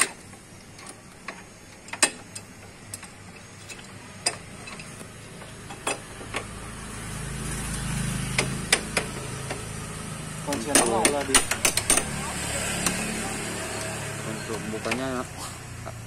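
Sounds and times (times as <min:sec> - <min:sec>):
metal wrench clinking on bolts: 0:01.9 - 0:05.0.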